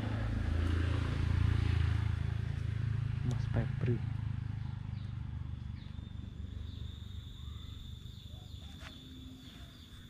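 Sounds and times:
insect high-pitched tone: 0:05.5 - 0:10.0.

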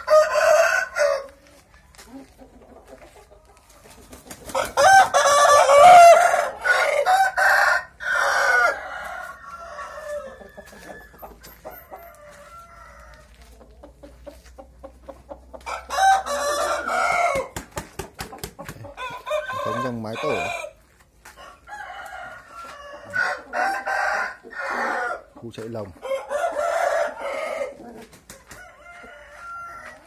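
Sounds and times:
roosters crowing: 0:00.0 - 0:01.5, 0:04.4 - 0:14.2, 0:15.0 - 0:30.0
chickens clucking: 0:00.0 - 0:30.0.

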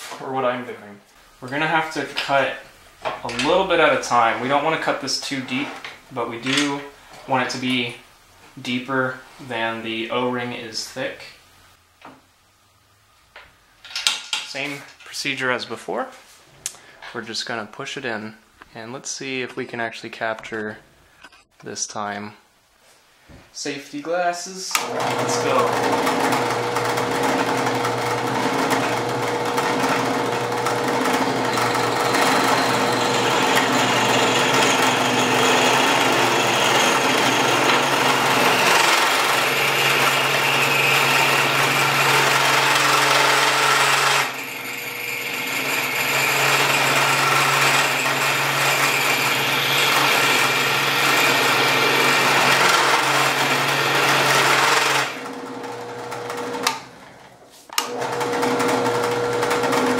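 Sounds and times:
drill press spinning: 0:24.8 - 0:57.2, 0:57.8 - 0:59.9.

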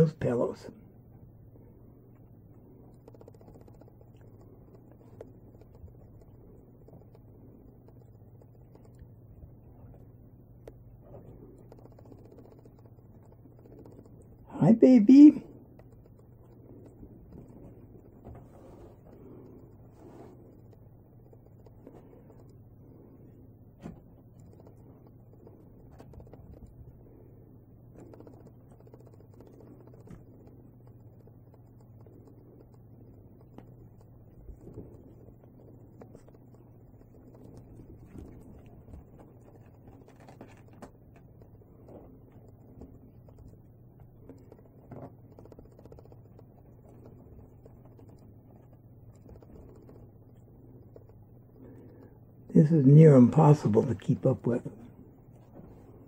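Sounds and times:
steady low hum: 0:00.0 - 0:56.0
kittens scampering on fabric: 0:15.6 - 0:52.3
kittens rustling on bedding: 0:17.2 - 0:20.6.

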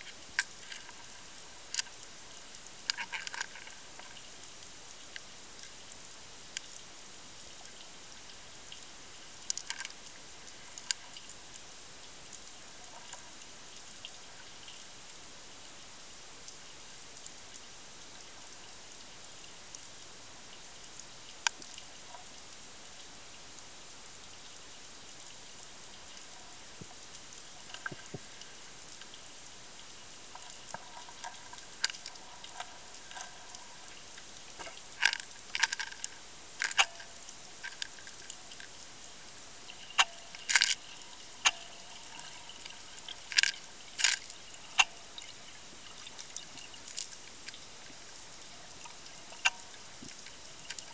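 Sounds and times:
sharp underwater clicks and knocks: 0:02.8 - 0:04.6, 0:08.7 - 0:11.4, 0:26.1 - 0:29.3, 0:30.3 - 0:38.8, 0:39.7 - 0:48.0, 0:48.6 - 0:50.9.

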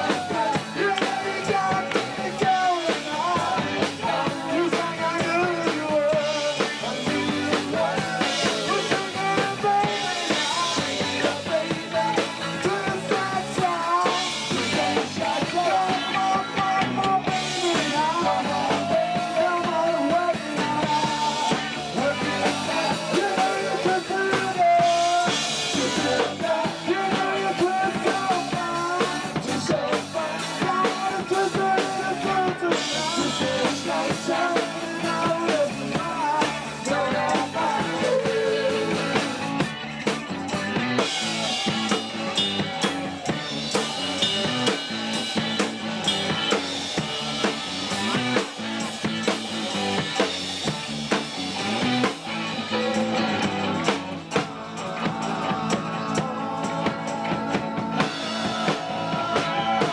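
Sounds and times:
person singing: 0:00.0 - 0:39.4, 0:51.7 - 0:59.9
drum kit: 0:00.0 - 0:59.9
live rock band: 0:00.0 - 0:59.9.

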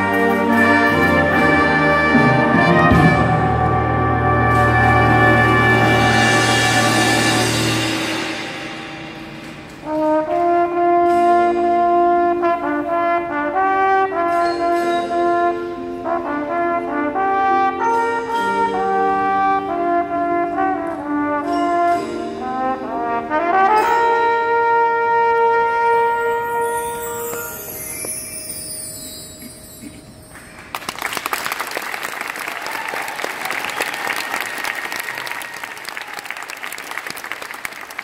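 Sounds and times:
marching band sustained chords: 0:00.0 - 0:30.7.

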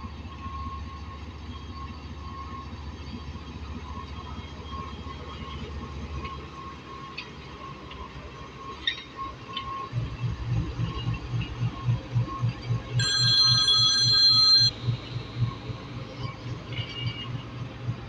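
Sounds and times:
diesel locomotive engine throbbing: 0:09.3 - 0:18.0.

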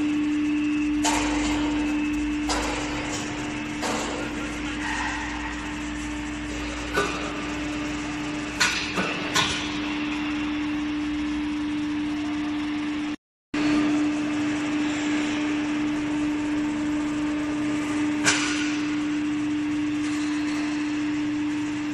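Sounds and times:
hydraulic cutterhead humming: 0:00.0 - 0:21.8
sharp metallic knocks: 0:01.0 - 0:07.9, 0:08.5 - 0:09.9.

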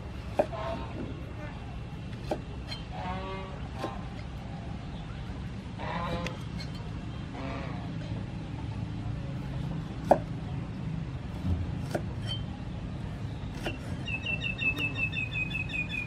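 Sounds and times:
low background noise: 0:00.0 - 0:16.0
knife chopping on wooden board: 0:00.2 - 0:00.6, 0:02.2 - 0:02.5, 0:10.0 - 0:10.3, 0:11.4 - 0:12.4
bird chirping: 0:14.0 - 0:16.0.

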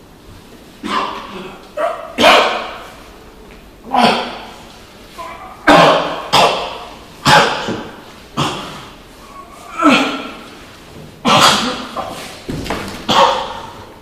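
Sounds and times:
person sneezing: 0:00.8 - 0:01.6, 0:02.2 - 0:02.8, 0:05.2 - 0:10.5, 0:11.2 - 0:12.4.

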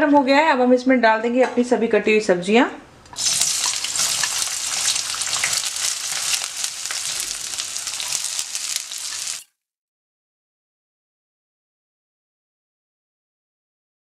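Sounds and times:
vegetables sizzling in hot oil: 0:03.1 - 0:09.5.

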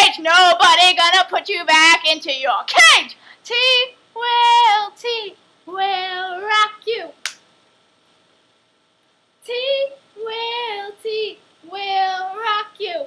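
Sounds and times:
woman singing unaccompanied: 0:00.0 - 0:07.2, 0:09.4 - 0:13.0
hand clap: 0:07.2 - 0:07.4.

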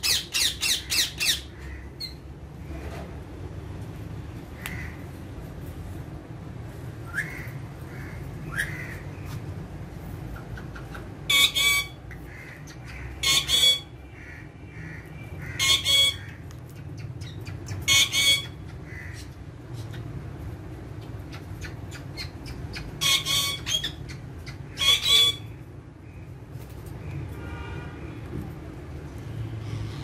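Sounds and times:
parakeets squawking: 0:00.0 - 0:02.2, 0:07.0 - 0:09.4, 0:10.3 - 0:20.3, 0:21.0 - 0:25.6.

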